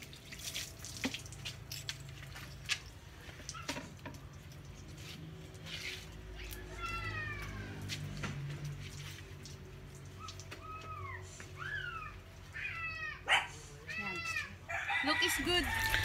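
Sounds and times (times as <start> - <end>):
dog whining: 10.2 - 14.3.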